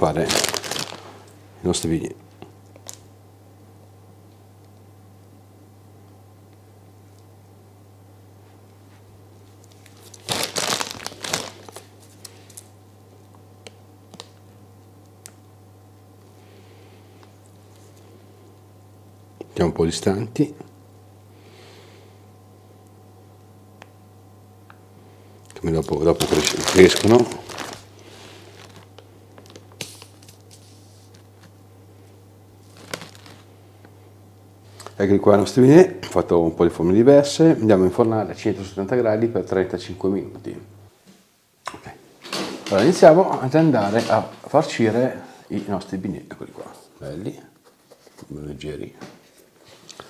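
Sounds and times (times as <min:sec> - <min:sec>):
plastic bag crackles and ticks: 0:00.0 - 0:01.2, 0:09.6 - 0:12.7, 0:25.5 - 0:27.9, 0:28.5 - 0:30.5, 0:32.6 - 0:33.5
plastic bag crinkling: 0:00.0 - 0:01.3, 0:09.6 - 0:12.7, 0:25.5 - 0:31.5, 0:32.6 - 0:33.5
steady low hum: 0:00.0 - 0:50.0.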